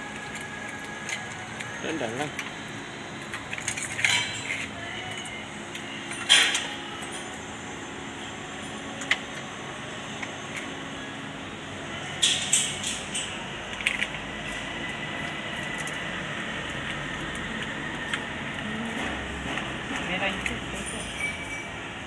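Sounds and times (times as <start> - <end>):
connectors clicking and rattling: 0.0 - 2.6, 3.2 - 7.3, 12.2 - 21.7
workshop background hum: 0.0 - 22.0.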